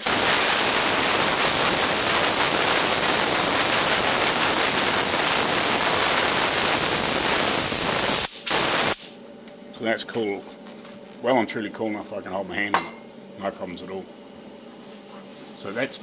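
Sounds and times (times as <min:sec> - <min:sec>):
compressed air blow gun hissing: 0:00.0 - 0:09.2.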